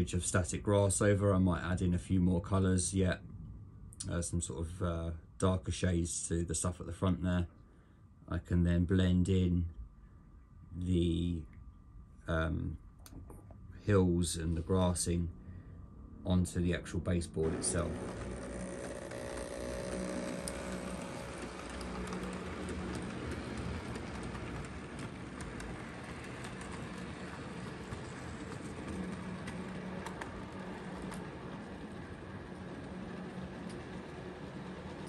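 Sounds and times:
model train motor hum: 17.4s - 35.0s
wheels rolling on track: 17.4s - 35.0s.

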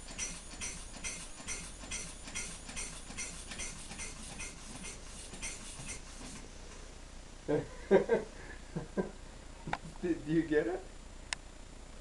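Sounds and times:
air-powered engine turning slowly: 0.0s - 7.0s
puffs of hissing air: 2.4s - 6.6s.

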